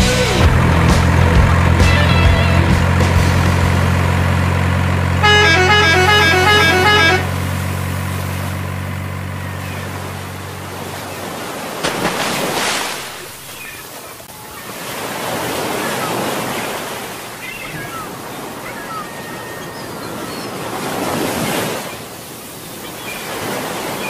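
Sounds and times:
musical truck horn tune: 0.0 - 9.4
truck engine droning: 0.0 - 11.8
moving water: 0.1 - 24.0.

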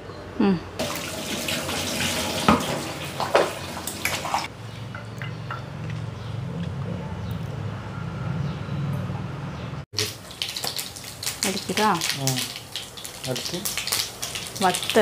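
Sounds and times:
boiling water hissing: 0.8 - 4.5, 10.0 - 15.0.

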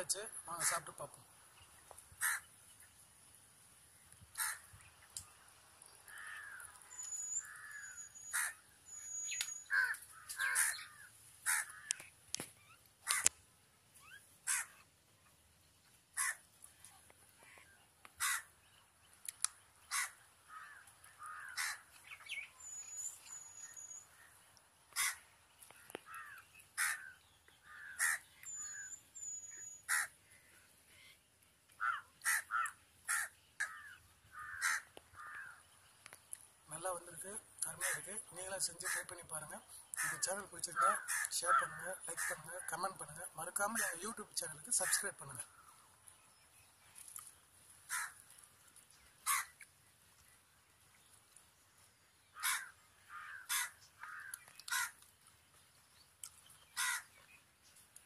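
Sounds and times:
crows cawing: 0.5 - 1.0, 2.1 - 2.5, 4.3 - 4.7, 6.1 - 8.7, 9.6 - 12.1, 13.0 - 13.4, 14.4 - 14.8, 16.2 - 16.4, 18.2 - 18.5, 19.9 - 22.0, 24.1 - 28.9, 29.8 - 30.6, 31.8 - 35.7, 37.6 - 44.0, 44.6 - 45.8, 47.9 - 48.3, 49.2 - 49.6, 52.3 - 55.0, 56.8 - 57.2
high bird chirps: 6.8 - 10.9, 22.1 - 24.1, 28.1 - 29.9.

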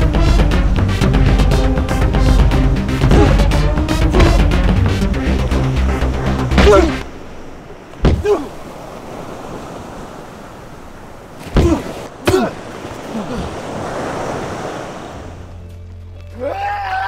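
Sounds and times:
ocean surf: 0.0 - 15.8
hard punches: 3.0 - 3.5, 4.1 - 4.6, 6.5 - 7.0, 8.0 - 8.4
man grunting: 3.0 - 3.5, 6.5 - 7.0, 8.1 - 8.6, 11.6 - 13.6.

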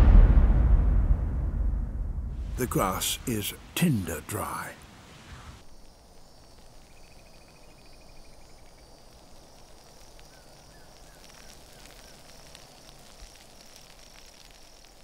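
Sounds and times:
pulsing high insect call: 5.6 - 15.0.

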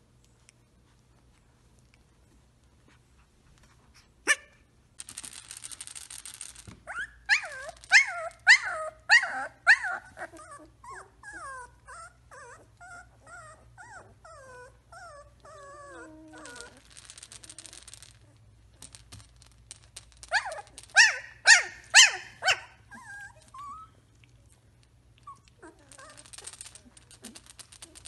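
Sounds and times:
puppy whining and yelping: 6.8 - 18.4, 20.2 - 24.1, 25.2 - 28.0.

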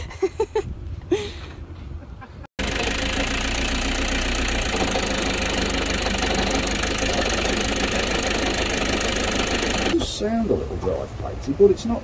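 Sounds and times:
diesel engine rattling clatter: 2.6 - 10.2
man talking: 10.0 - 12.0.

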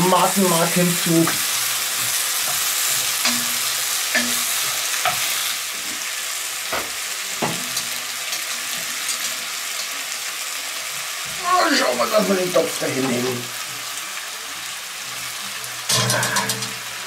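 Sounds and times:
vegetables sizzling in broth: 0.0 - 17.0
utensils knocking against pot: 2.5 - 5.3, 15.9 - 16.8.

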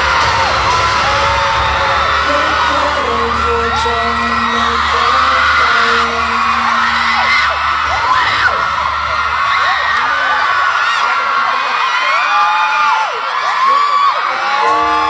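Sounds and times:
loud music over speakers: 0.0 - 10.0
crowd screaming: 0.0 - 15.0.

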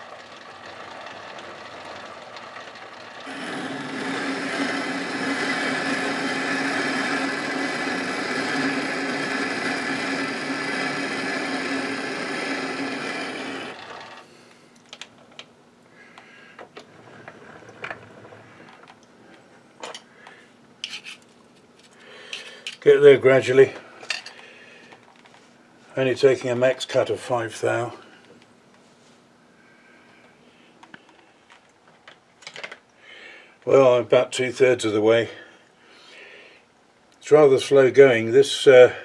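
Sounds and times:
metal lathe humming: 0.0 - 14.4.

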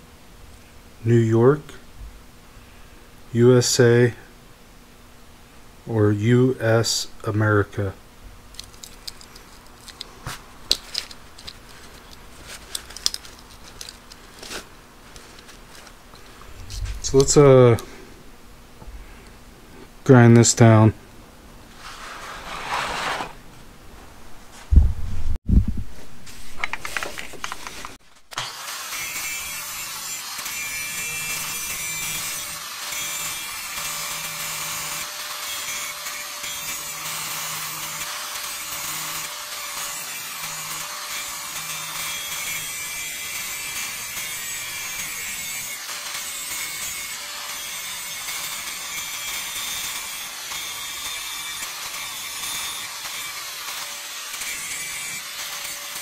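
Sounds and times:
paper towel rustling: 21.8 - 23.4
angle grinder grinding steel: 28.3 - 56.0.

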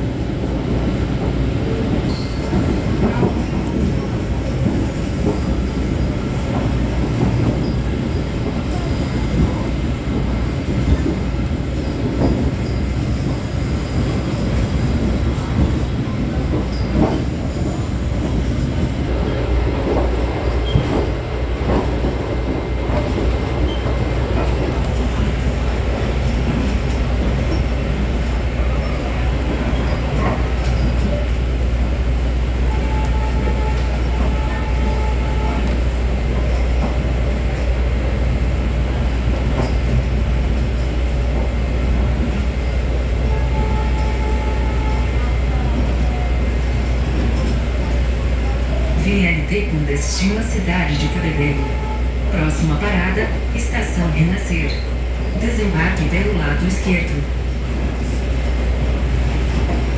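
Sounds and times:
railcar engine and wheels rumbling: 0.0 - 59.9.

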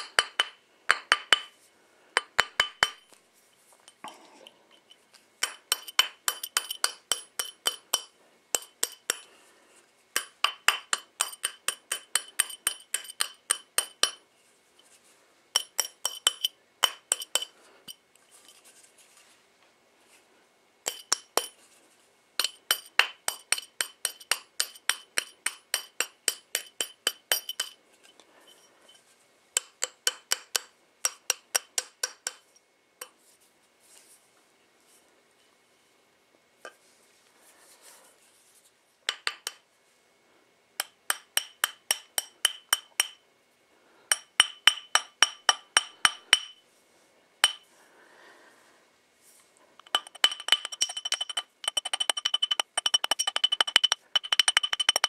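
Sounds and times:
hammer tapping metal ring: 2.2 - 3.1, 5.4 - 9.3, 10.2 - 14.2, 15.6 - 18.0, 20.9 - 21.6, 22.4 - 27.8, 40.8 - 43.2, 44.1 - 46.6, 47.4 - 47.6, 49.8 - 55.0.

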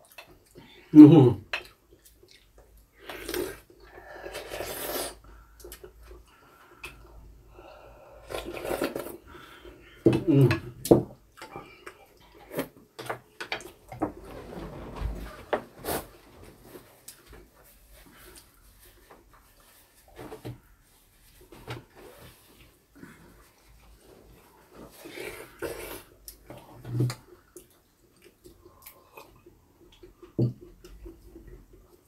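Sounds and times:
chewing: 1.6 - 7.1, 27.1 - 32.0
slurping broth: 3.0 - 5.2, 8.2 - 9.3, 25.0 - 26.2.

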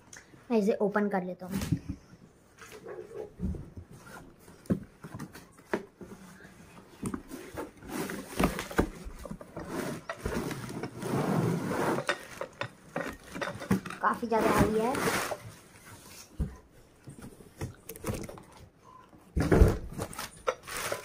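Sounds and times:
plastic wrapping rustling: 19.7 - 21.0.

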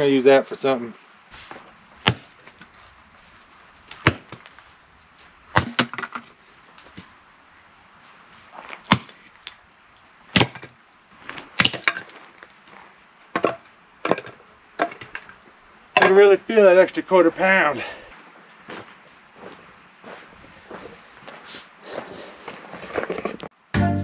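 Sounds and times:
hatchet chopping wood: 2.0 - 2.3, 4.0 - 4.4, 5.6 - 6.2, 8.9 - 9.2
wood splitting crack: 5.6 - 6.3.

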